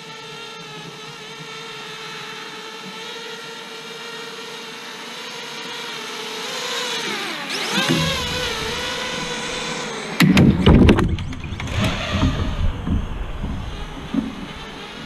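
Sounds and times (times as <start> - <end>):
drone motors whining: 0.0 - 15.0
sharp clattering knocks: 7.7 - 15.0.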